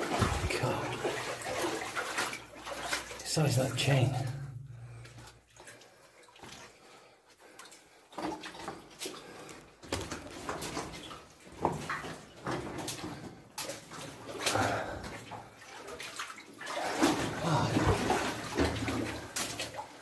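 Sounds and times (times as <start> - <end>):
footsteps splashing through water: 0.0 - 3.3, 7.6 - 20.0.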